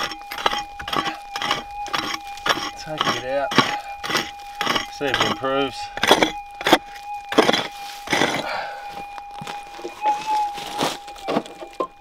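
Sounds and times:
pick digging into stony ground: 0:00.0 - 0:05.4, 0:06.0 - 0:08.5
metal detector hum: 0:00.0 - 0:12.0.

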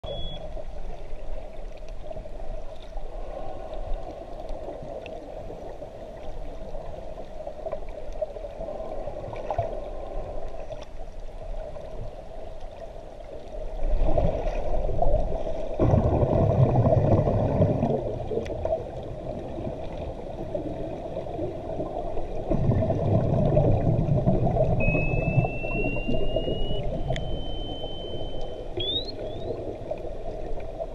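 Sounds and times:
underwater gurgling and sloshing: 0:00.0 - 0:30.9
water rushing: 0:13.3 - 0:30.9
faint rising high tone: 0:24.8 - 0:29.6.

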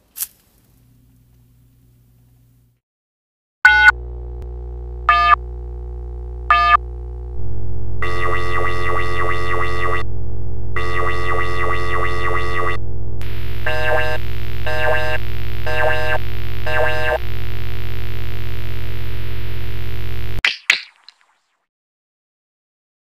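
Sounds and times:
low synthesizer drone: 0:03.9 - 0:18.6.

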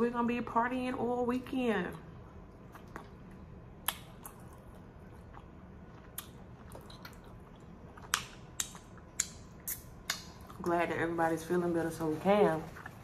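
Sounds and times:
wet chewing and finger-licking: 0:01.9 - 0:10.7.

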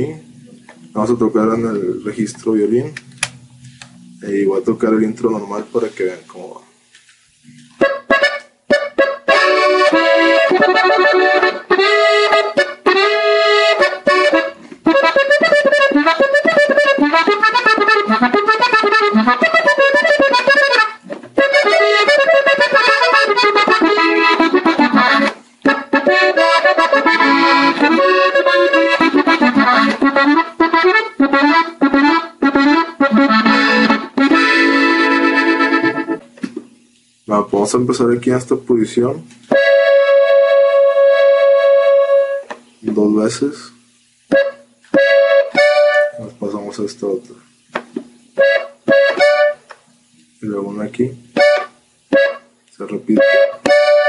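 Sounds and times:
button accordion playing: 0:07.8 - 0:36.2, 0:39.5 - 0:42.5, 0:44.3 - 0:46.2, 0:48.3 - 0:49.7, 0:51.4 - 0:54.0.

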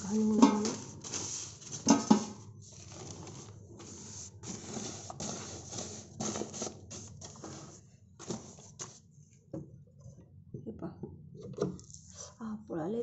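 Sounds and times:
rustling and handling noise: 0:00.0 - 0:10.3.

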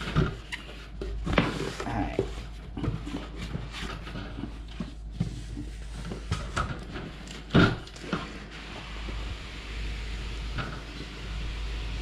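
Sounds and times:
cardboard rustling and scraping: 0:00.0 - 0:12.0.

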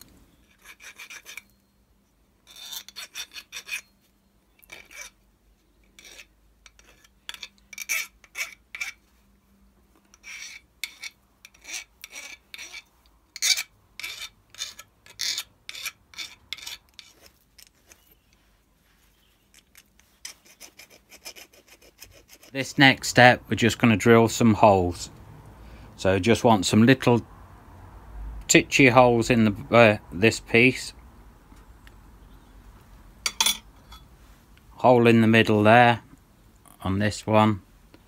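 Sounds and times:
hand file scraping metal: 0:00.4 - 0:01.5, 0:02.4 - 0:03.9, 0:04.6 - 0:05.2, 0:05.8 - 0:09.0, 0:10.1 - 0:18.3, 0:19.5 - 0:22.8.

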